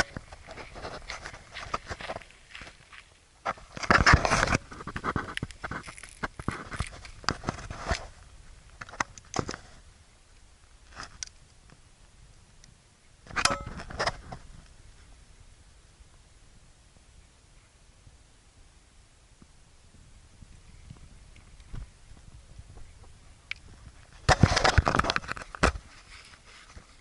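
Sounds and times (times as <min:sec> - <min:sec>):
footsteps crunching on coarse sand: 0:00.1 - 0:08.2.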